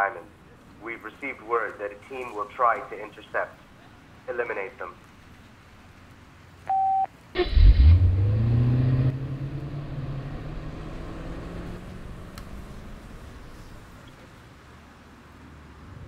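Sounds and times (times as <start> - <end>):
short electronic phone beep: 6.7 - 7.1
car engine revving: 7.4 - 14.2.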